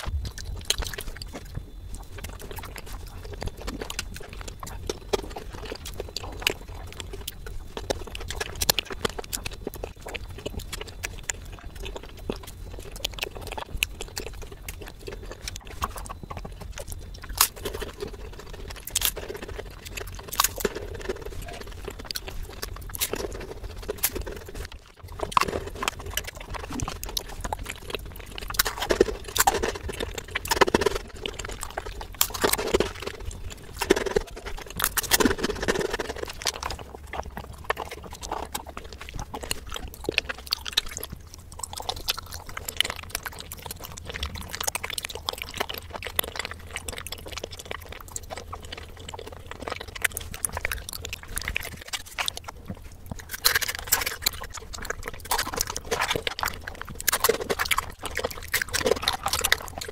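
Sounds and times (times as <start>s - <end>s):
chewing and lip-smacking: 0.0s - 59.9s.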